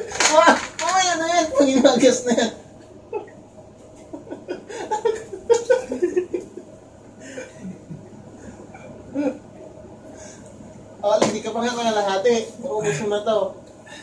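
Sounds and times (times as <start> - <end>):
man laughing: 1.6 - 8.2.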